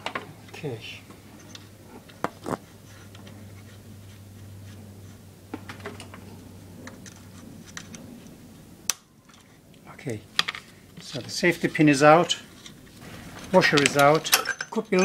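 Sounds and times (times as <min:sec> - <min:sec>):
steady low hum: 0:00.0 - 0:15.0
light metallic clicks and scrapes: 0:10.4 - 0:15.0.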